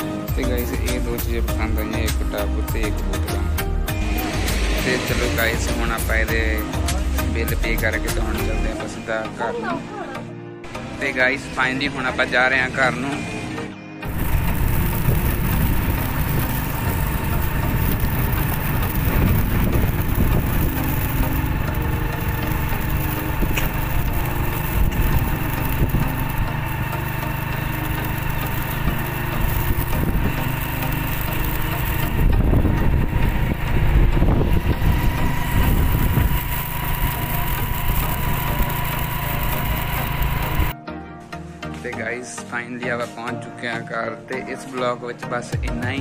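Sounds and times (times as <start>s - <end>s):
wind and road noise: 14.0s - 28.2s, 28.8s - 40.8s
motorcycle engine cruising: 14.0s - 40.8s.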